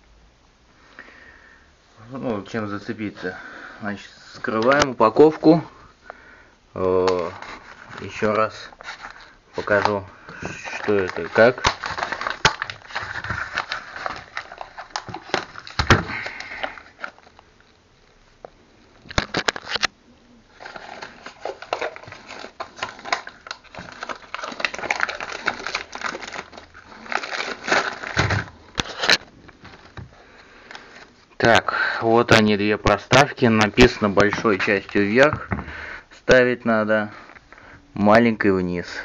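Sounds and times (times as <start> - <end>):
plastic bag crinkling: 6.9 - 17.8, 19.0 - 19.9, 20.5 - 31.6.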